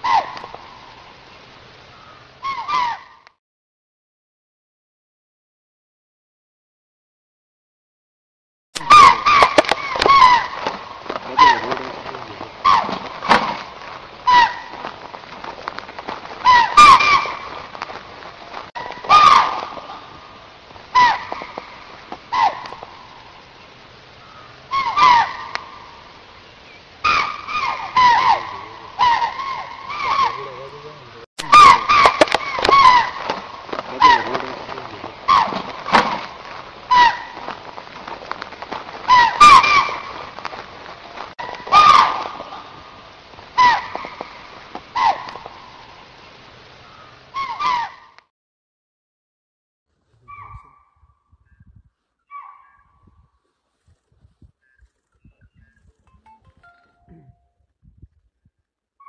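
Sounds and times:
animal short falling calls: 8.8 - 15.1, 16.4 - 17.7, 18.7 - 20.2, 20.9 - 22.9, 24.7 - 25.6, 27.0 - 37.7, 39.0 - 40.3, 41.4 - 42.8, 43.6 - 45.5.

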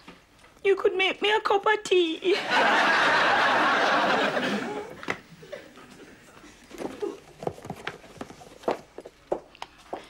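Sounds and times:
studio audience laughter: 2.3 - 5.0.

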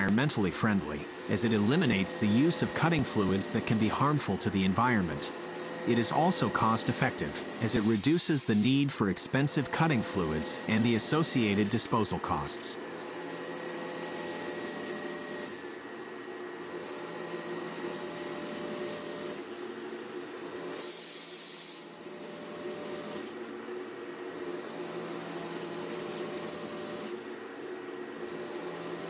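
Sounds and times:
hissing cutting noise: 0.0 - 12.8
machine hum and whine: 0.0 - 29.0.

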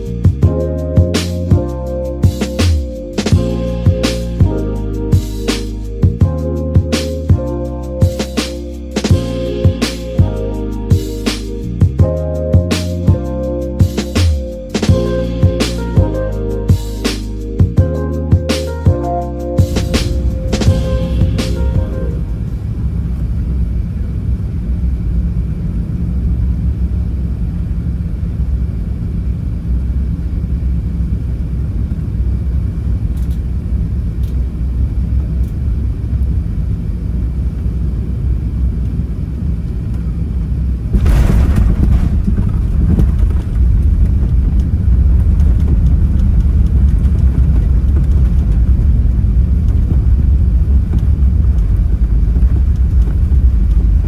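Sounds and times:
aircraft cabin rumble: 17.6 - 54.0.

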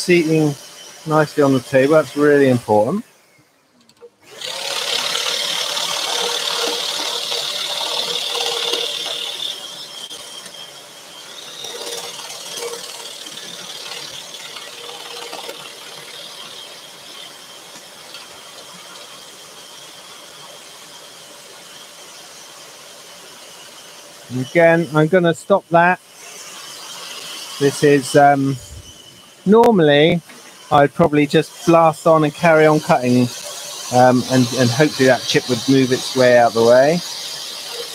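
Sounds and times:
scroll saw buzzing and whining: 0.0 - 37.9.

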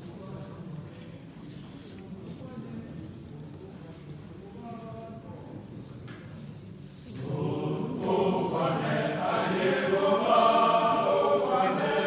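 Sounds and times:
congregation chanting: 7.1 - 12.0.

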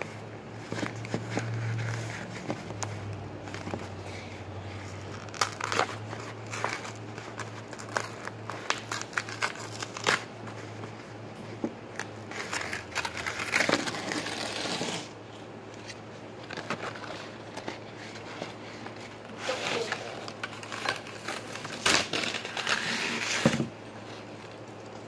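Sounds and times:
plastic sheeting crinkling: 0.0 - 15.4.

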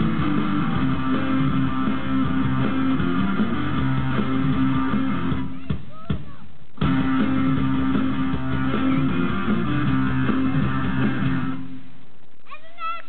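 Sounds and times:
rock band final chord: 0.0 - 5.5, 6.8 - 11.7.

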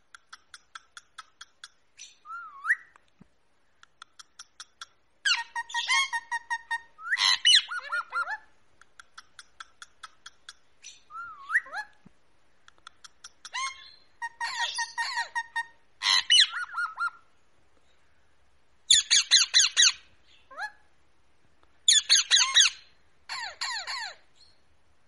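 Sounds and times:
parakeets calling: 4.4 - 8.4, 13.1 - 17.2, 18.9 - 20.6, 21.9 - 24.2
parakeet squawks: 5.2 - 8.5, 13.4 - 17.2, 21.9 - 24.2.

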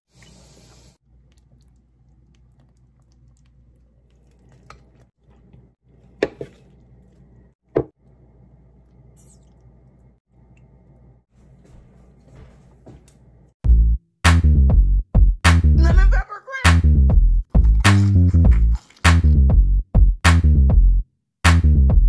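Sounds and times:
wet squishes of food: 1.0 - 7.5, 17.6 - 19.1.

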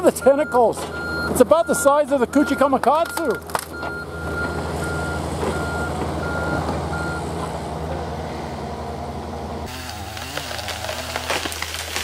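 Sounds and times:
diesel engine running: 0.0 - 11.9
travel alarm beeping: 0.2 - 7.2.

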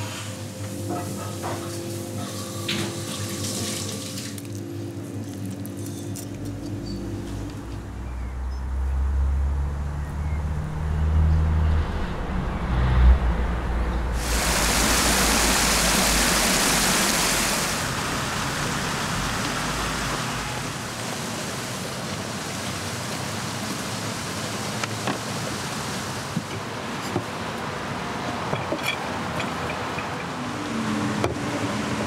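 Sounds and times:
road traffic rumble: 4.2 - 32.0
water rushing over weir: 14.0 - 32.0.

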